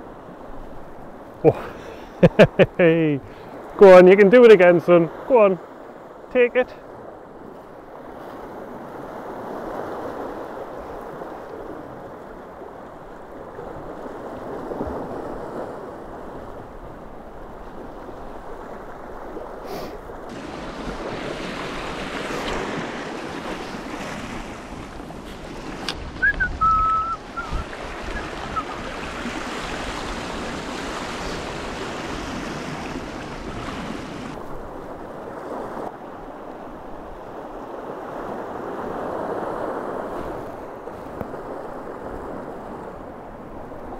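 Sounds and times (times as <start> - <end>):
surf washing over rocks: 0.0 - 43.9
wind on microphone: 7.4 - 35.8.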